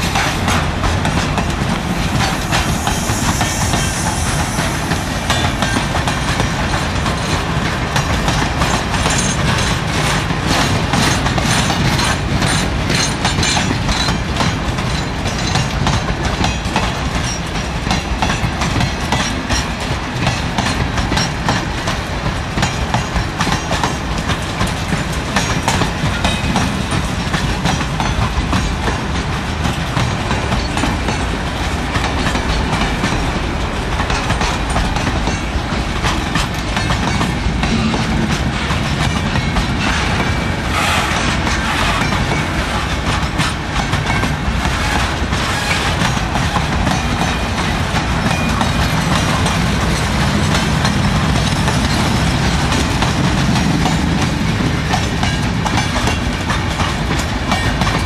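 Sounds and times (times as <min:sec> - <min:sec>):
freight train wheels clattering: 0:00.0 - 0:58.0
continuous clicking: 0:41.2 - 0:58.0.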